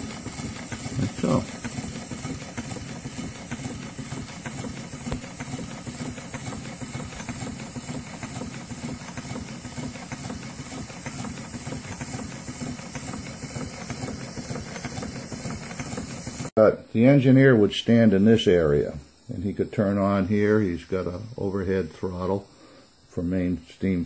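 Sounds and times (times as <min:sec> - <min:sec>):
model steam engine running: 0:00.0 - 0:24.0.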